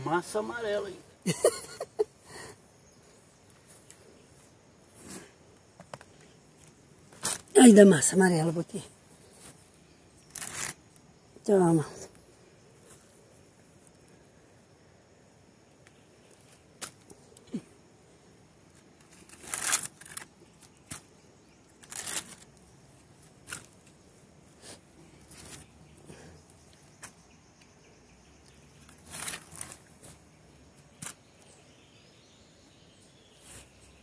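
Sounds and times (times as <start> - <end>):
soil rustling and scraping: 3.0 - 7.9, 9.1 - 11.0, 18.7 - 26.2, 28.7 - 31.6.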